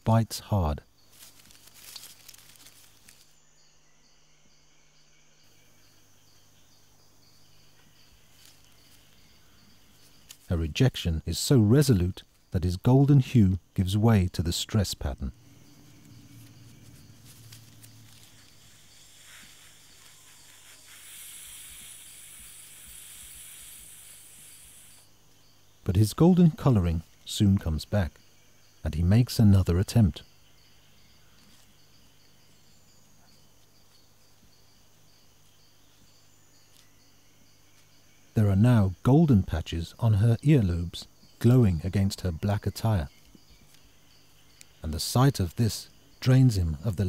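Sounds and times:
insects chirping: 0.0 - 47.0
low steady hiss: 0.0 - 47.0
chameleon hissing: 15.5 - 25.1.

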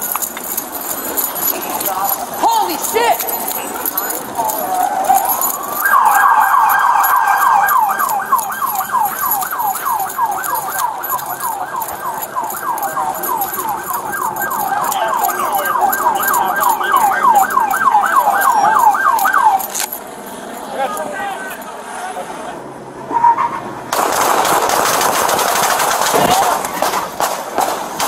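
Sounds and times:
police siren yelping: 0.0 - 20.0.

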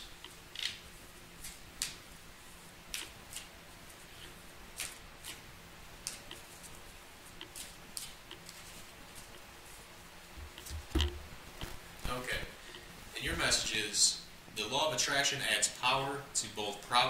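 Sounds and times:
cards flicking and snapping: 0.6 - 2.0, 2.9 - 3.5, 4.8 - 5.4, 6.0 - 6.4, 7.5 - 8.7
cards being shuffled: 2.9 - 5.4, 6.0 - 9.4.

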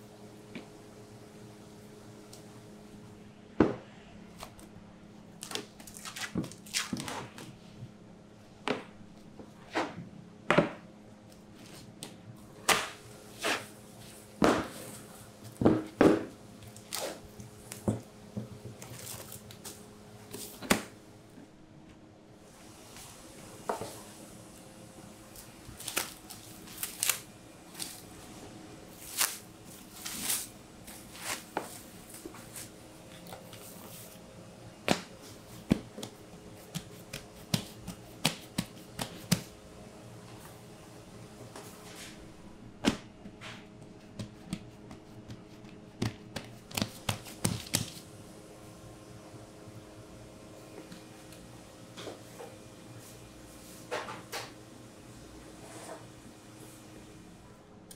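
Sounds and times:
steady low hum: 0.0 - 57.9
plastic wrap crinkling: 5.4 - 7.2, 25.3 - 28.1, 28.9 - 32.7
dough being worked by hand: 8.6 - 20.9, 25.3 - 39.6, 42.8 - 48.1.

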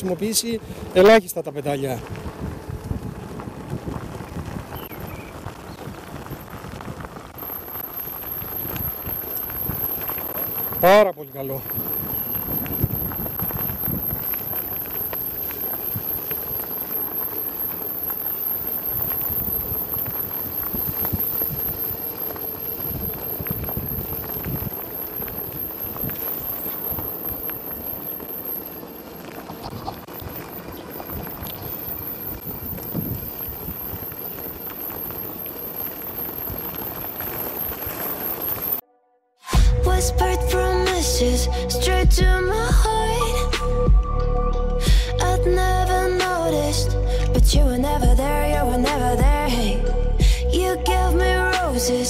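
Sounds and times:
tyres crunching on gravel: 0.0 - 38.8.

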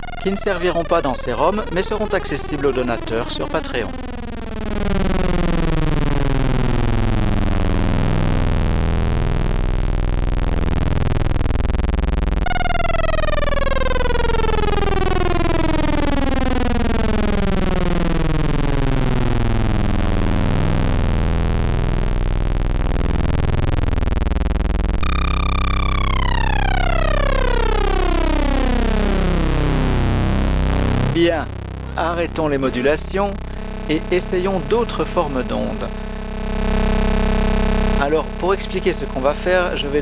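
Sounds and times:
low steady synth note: 0.0 - 40.0
synthesizer tone sweeping downward: 0.0 - 40.0.

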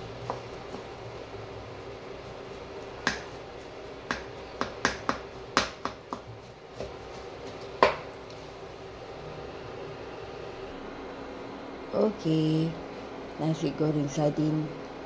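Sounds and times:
wooden spatula knocking on wok: 3.0 - 3.3, 4.0 - 7.0, 7.8 - 8.1.

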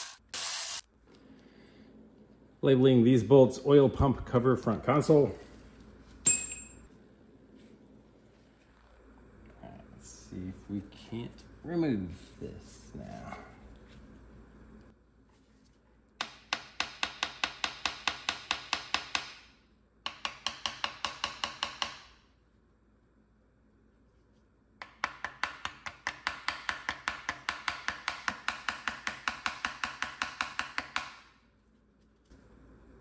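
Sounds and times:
hammer tapping on metal: 20.0 - 22.1, 24.8 - 31.2.

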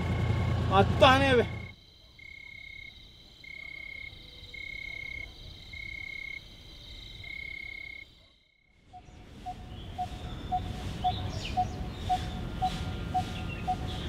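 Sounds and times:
frogs and insects calling: 1.4 - 14.0
lower repeating call: 9.0 - 14.0.

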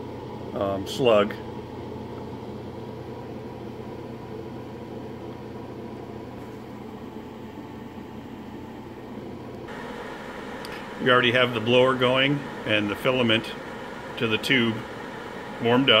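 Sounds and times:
low hum: 9.6 - 16.0
blower rushing air: 9.7 - 16.0.

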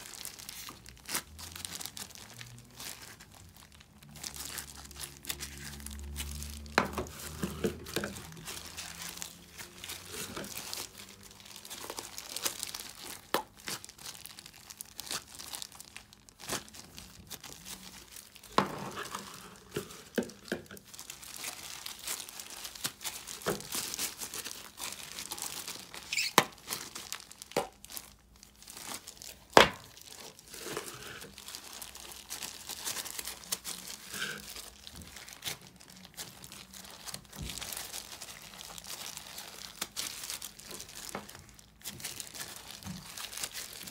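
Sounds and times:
plastic gloves crinkling: 0.0 - 43.9.

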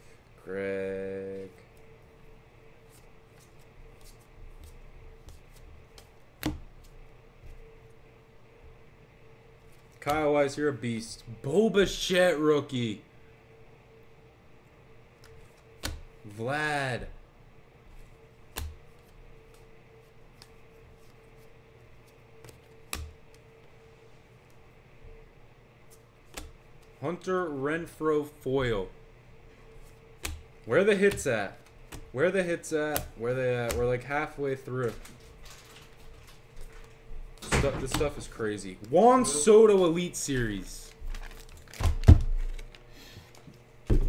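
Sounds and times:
faint steady hum: 0.0 - 44.0
cards being flipped through: 2.8 - 7.6, 17.9 - 23.7, 25.9 - 27.0, 34.6 - 39.5, 40.2 - 43.7
cards flipped by hand: 17.9 - 23.5, 25.9 - 27.0.

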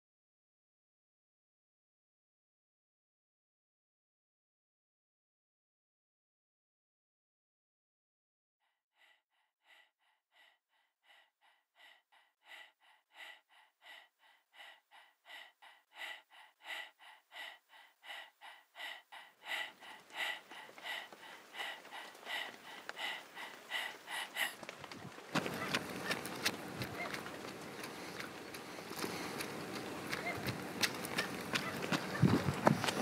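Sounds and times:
runner breathing hard: 8.9 - 33.0
steady outdoor hiss: 12.4 - 33.0
footfalls on dirt road: 24.6 - 33.0.

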